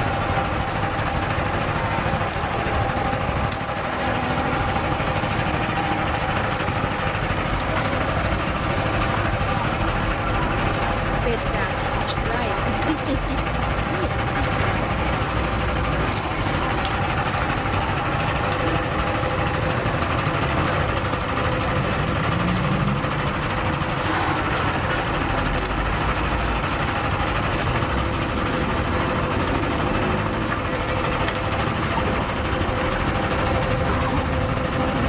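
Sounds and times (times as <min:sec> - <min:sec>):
sugarcane juice press running: 0:00.0 - 0:35.0.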